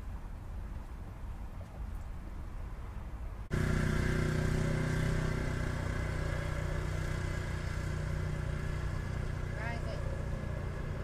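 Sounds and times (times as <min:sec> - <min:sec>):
vehicle engine idling: 0:03.5 - 0:11.0.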